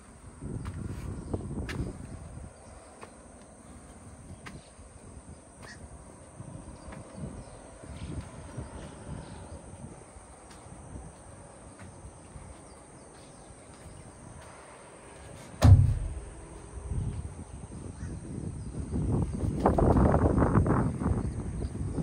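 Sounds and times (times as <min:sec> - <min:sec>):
wind buffeting microphone: 0:00.0 - 0:03.0, 0:03.8 - 0:14.4, 0:15.4 - 0:22.0
heavy thump: 0:15.6 - 0:17.3.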